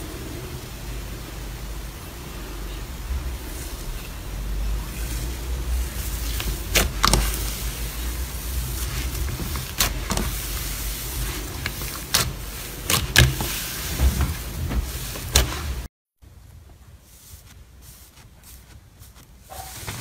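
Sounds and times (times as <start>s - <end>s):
slime squishing: 3.2s - 15.9s.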